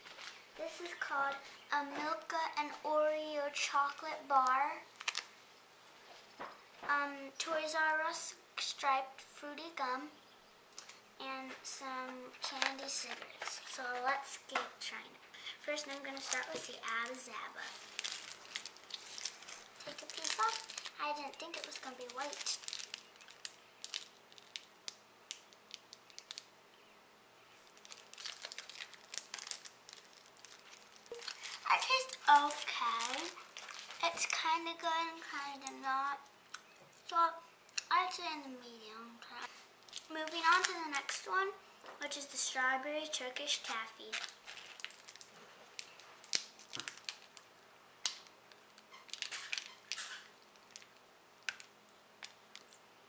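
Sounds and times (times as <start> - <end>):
candy wrapper crinkling: 3.9 - 5.4, 12.4 - 14.4, 15.4 - 26.5, 27.6 - 36.6, 39.4 - 41.4, 43.5 - 52.8.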